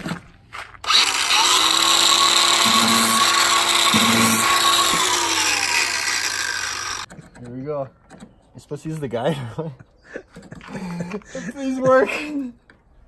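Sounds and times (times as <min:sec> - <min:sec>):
angle grinder grinding: 0:00.8 - 0:07.1.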